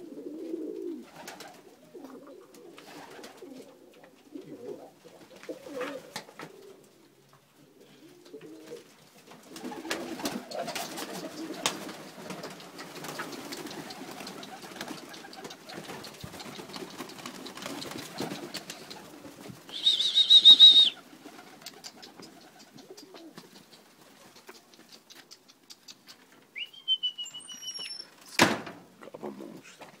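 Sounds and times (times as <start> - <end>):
pigeons cooing: 0.0 - 26.2
wings flapping: 1.0 - 1.6, 2.8 - 3.6, 8.6 - 26.4
high wavering whistle-like call: 19.7 - 21.0, 26.6 - 28.1.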